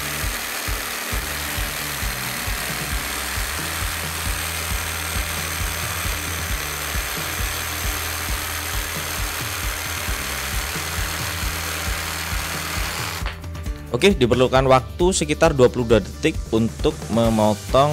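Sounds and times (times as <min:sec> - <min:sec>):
jigsaw cutting wood: 0:00.0 - 0:13.4
background music with low beat: 0:00.2 - 0:17.9.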